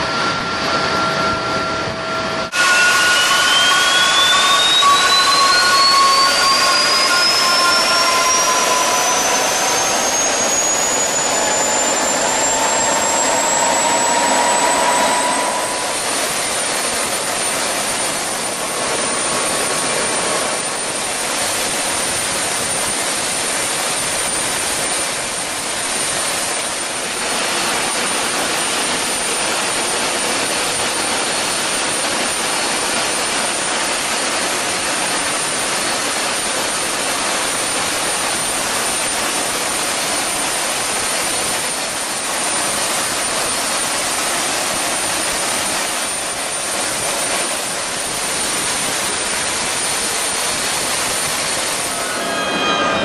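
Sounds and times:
high-pitched engine whine: 0:00.0 - 0:53.0
jet engine rushing hiss: 0:00.1 - 0:22.1.

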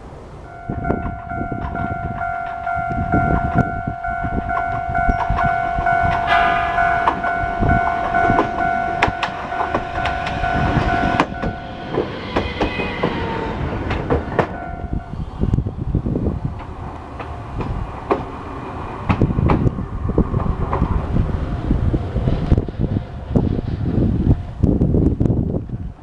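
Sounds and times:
tram passing with low rumble: 0:00.0 - 0:26.0
steady high tones: 0:00.4 - 0:17.6
wheels clicking over rail joints: 0:00.5 - 0:23.5.

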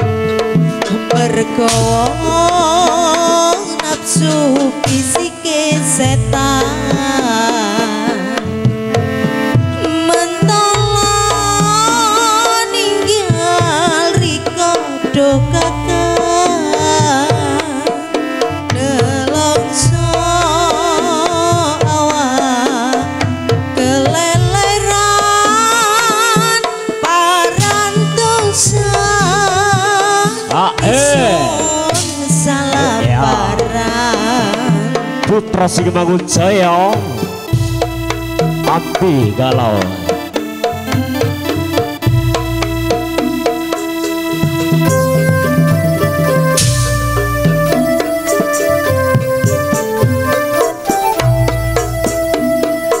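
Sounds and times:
hand drums beating: 0:00.0 - 0:53.0
wavering melody: 0:30.5 - 0:53.0.

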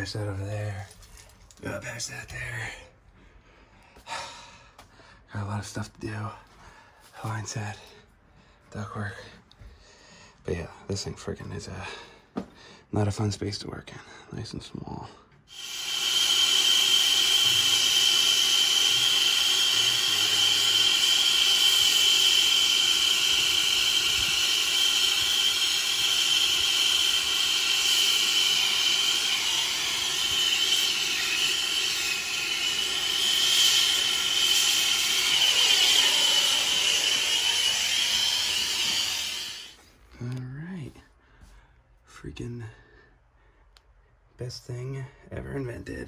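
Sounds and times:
steady high tone: 0:15.5 - 0:39.8
torch flame hissing: 0:15.5 - 0:39.8.

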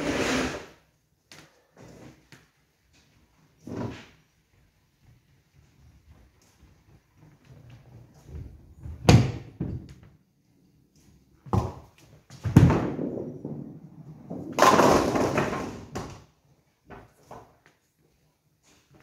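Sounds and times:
bowling ball thudding and rolling: 0:11.5 - 0:16.3.

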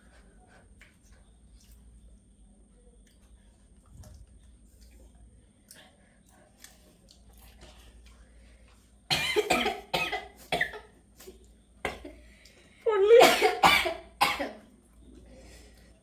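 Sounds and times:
person coughing: 0:09.1 - 0:10.9, 0:13.2 - 0:14.6.

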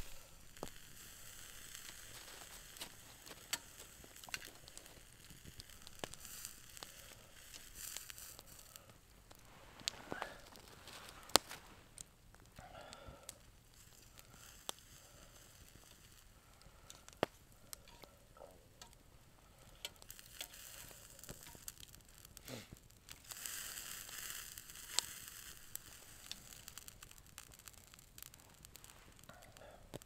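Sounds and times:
campfire crackling: 0:00.0 - 0:30.0
meat sizzling: 0:00.0 - 0:30.0.

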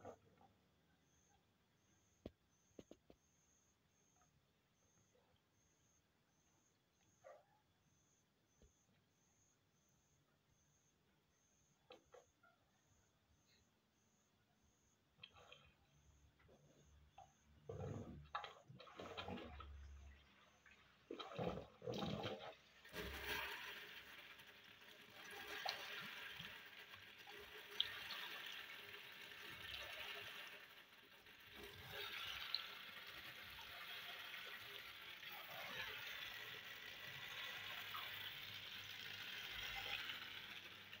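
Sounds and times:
faint running water: 0:15.2 - 0:41.0.

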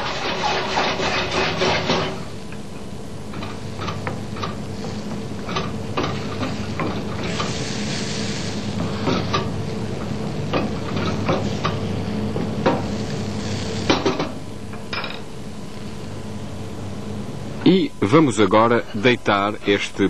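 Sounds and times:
wooden spoon scraping metal pan: 0:00.0 - 0:02.2
sauce sizzling: 0:04.6 - 0:14.0.

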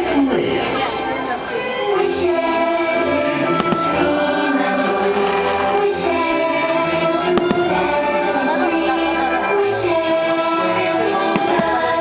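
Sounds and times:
orchestral music: 0:00.0 - 0:12.0
choir singing held notes: 0:01.3 - 0:12.0
firework pops: 0:03.6 - 0:04.1, 0:07.4 - 0:07.7, 0:11.3 - 0:11.9.

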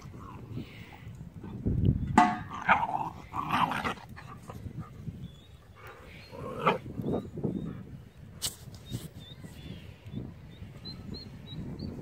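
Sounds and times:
dogs play-fighting vocalizing: 0:02.6 - 0:07.9.

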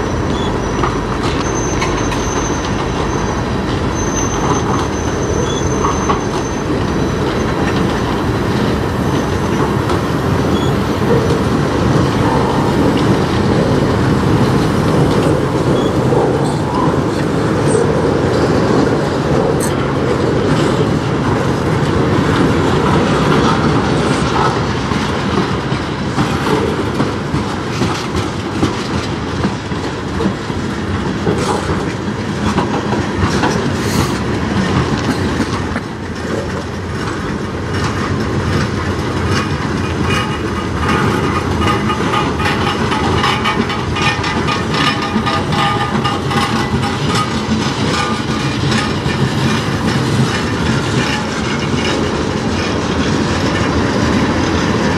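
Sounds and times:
high wheel squeal: 0:00.0 - 0:11.3, 0:15.6 - 0:17.0
train wheels rumbling on rails: 0:00.0 - 0:54.9
wheels clicking over rail joints: 0:00.0 - 0:54.9.

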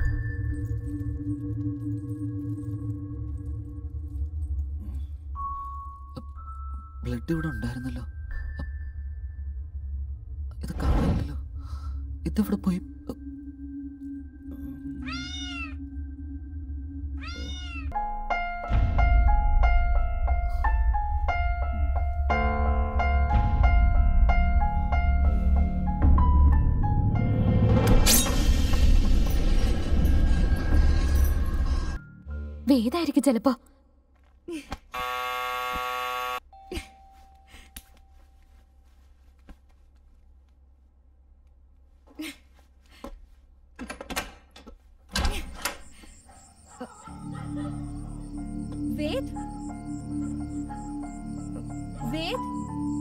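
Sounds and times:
cat meowing: 0:15.0 - 0:15.8, 0:17.2 - 0:17.9
doorbell buzzer: 0:35.0 - 0:36.4.

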